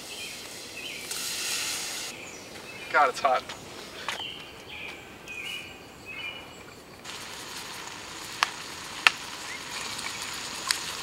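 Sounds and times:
meat sizzling in a pot: 0.0 - 2.2, 7.0 - 11.0.

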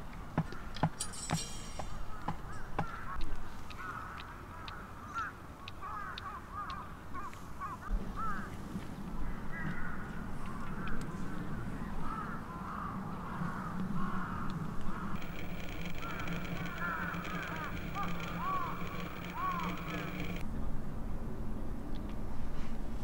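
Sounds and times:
low steady hum: 15.2 - 20.4.

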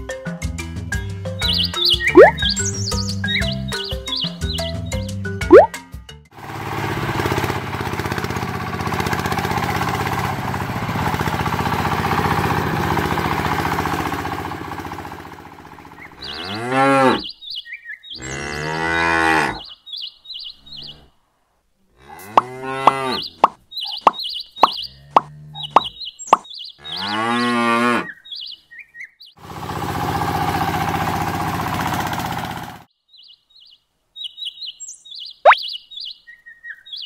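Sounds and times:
cattle mooing: 16.2 - 17.3, 18.2 - 19.7, 22.0 - 23.4, 26.8 - 28.2.

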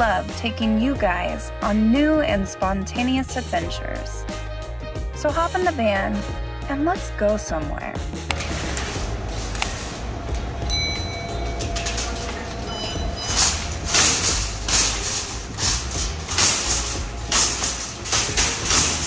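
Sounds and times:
wire shopping cart rattling: 8.3 - 19.0
ringing chime: 10.2 - 14.6.

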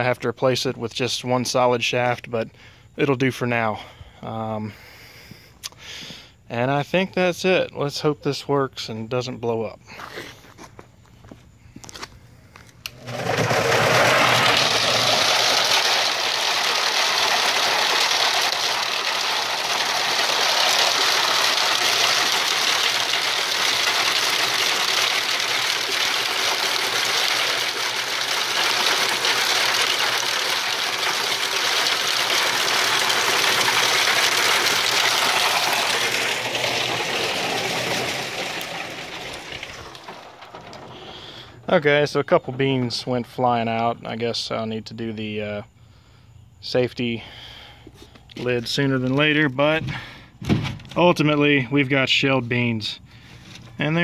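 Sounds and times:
dry beans clattering in drum: 12.8 - 43.0
electric motor spinning: 12.9 - 41.0.

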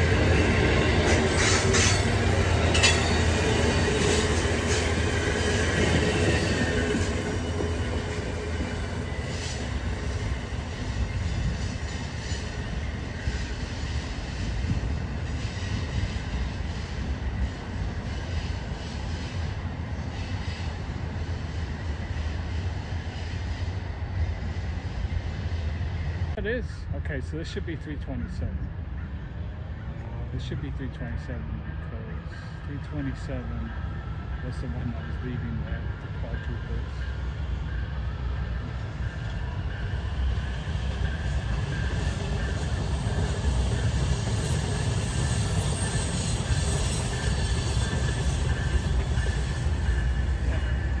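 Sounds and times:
train wheels clicking over rail joints: 0.0 - 20.9, 31.8 - 51.0
low train rumble: 0.0 - 51.0.

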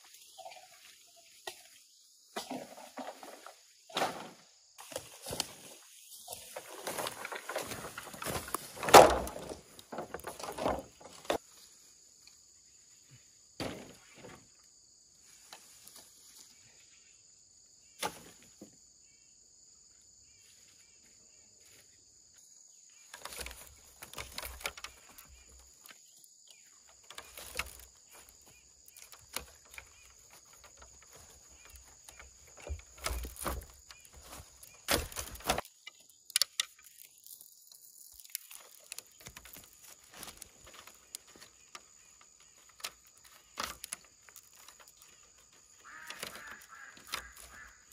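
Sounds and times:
rustling of dry leaves: 4.8 - 13.2, 14.0 - 17.0, 22.9 - 47.9
bamboo poles knocking: 6.5 - 11.4, 23.1 - 26.0, 26.8 - 37.0, 38.2 - 47.9.

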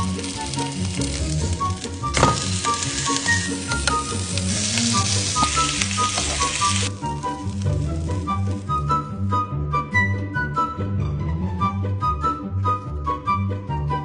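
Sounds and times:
steak sizzling in a frying pan: 0.0 - 8.7.

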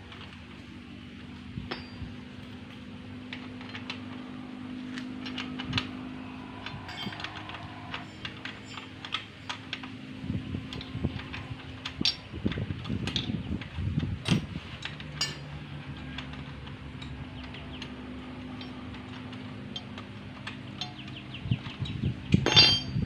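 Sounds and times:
steady low hum: 0.0 - 23.0
hand tools clinking on bolts: 1.7 - 2.8, 6.6 - 13.4, 14.2 - 23.0.

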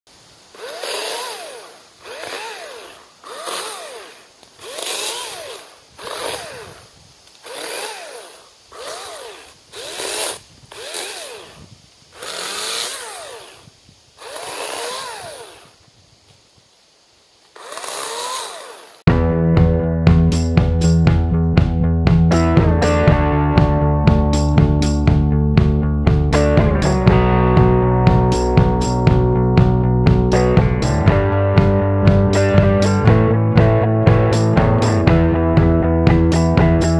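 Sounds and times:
chainsaw motor whine revving: 0.5 - 15.8, 17.5 - 19.1.

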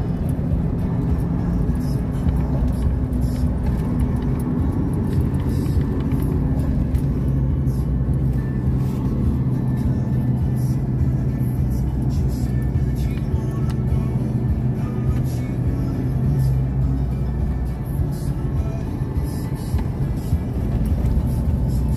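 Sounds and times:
car road and engine noise: 0.0 - 21.9
music playing: 0.0 - 21.9.

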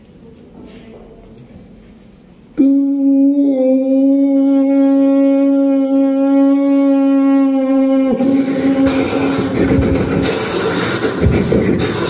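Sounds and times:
man imitating train horn: 2.6 - 10.2.

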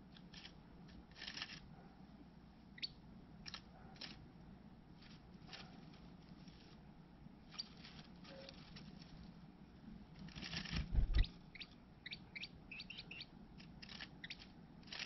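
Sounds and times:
bird chirp: 2.8 - 3.6, 11.0 - 14.5
rustling of nest material: 4.9 - 11.3.

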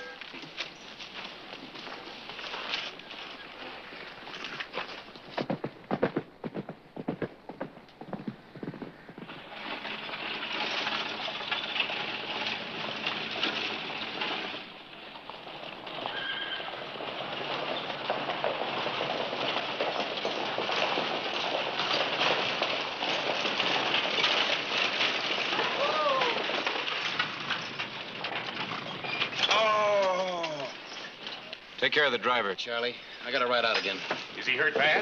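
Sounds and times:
horse hooves galloping: 0.0 - 35.0
horse whinny: 16.0 - 16.8.

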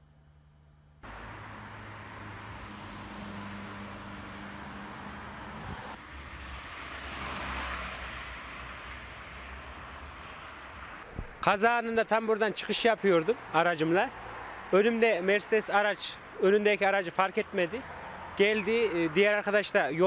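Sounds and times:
road traffic noise: 0.0 - 20.0
car passing close: 1.0 - 11.4.

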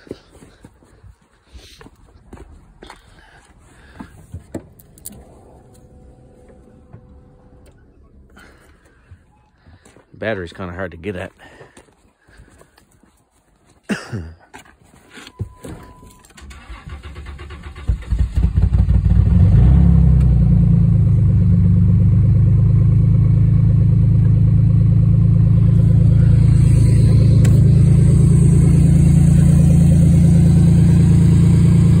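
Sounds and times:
car engine starting and idling: 2.3 - 10.0, 15.3 - 32.0.

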